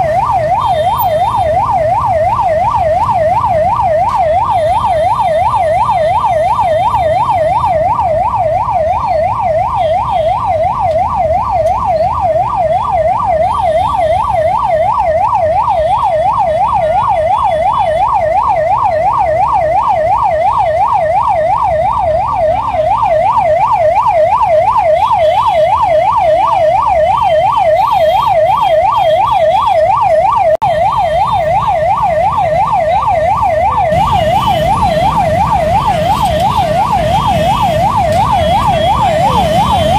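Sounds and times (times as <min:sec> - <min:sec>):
emergency siren wailing: 0:00.0 - 0:39.9
traffic rumble: 0:29.5 - 0:39.9.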